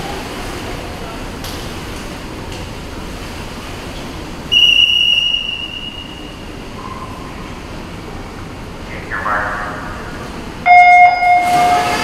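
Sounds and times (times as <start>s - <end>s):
indoor pool hall noise: 0.0s - 12.0s
high signal tone: 10.7s - 12.0s.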